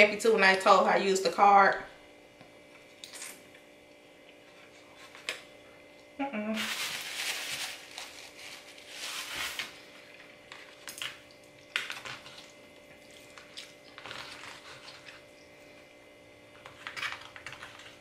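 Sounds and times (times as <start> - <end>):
paper napkin rustling: 6.6 - 9.8.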